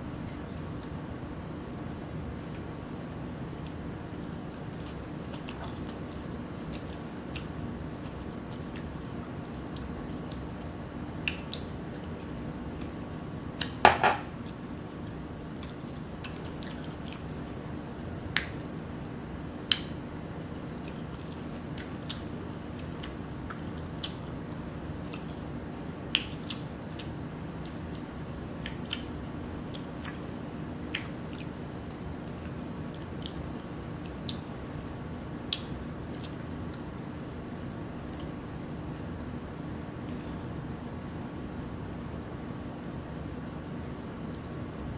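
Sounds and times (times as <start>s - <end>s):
quiet chewing: 2.3s - 13.0s, 14.4s - 17.7s, 19.6s - 41.2s.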